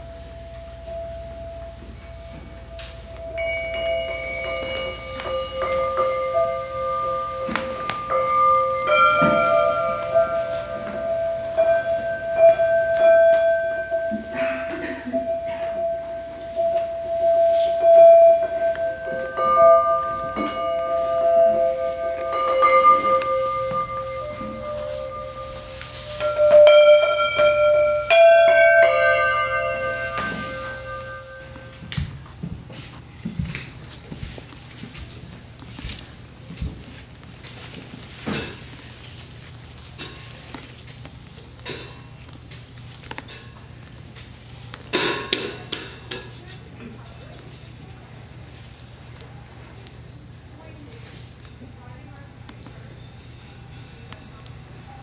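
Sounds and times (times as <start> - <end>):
struck metal percussion ringing: 0.0 - 31.9, 44.9 - 46.3
stick tapping cymbal: 0.8 - 32.0, 44.2 - 47.1.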